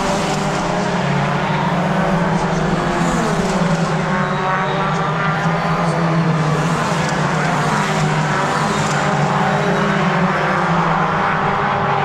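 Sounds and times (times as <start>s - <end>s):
racing car engines at speed: 0.0s - 12.0s.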